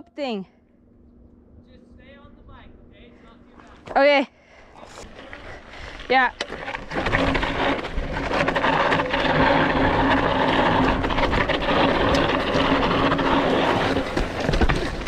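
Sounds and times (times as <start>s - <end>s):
tyres crunching on gravel: 4.8s - 15.0s
bike rattling and knocking: 5.1s - 15.0s.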